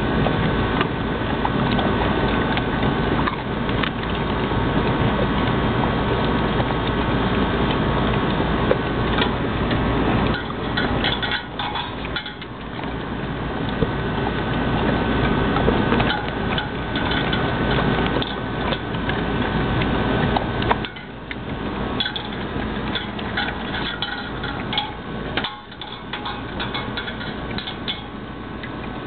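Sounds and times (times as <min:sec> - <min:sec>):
dogs chewing and crunching bone: 0:00.1 - 0:29.0
metal bowls clinking: 0:10.3 - 0:12.6, 0:22.0 - 0:28.2.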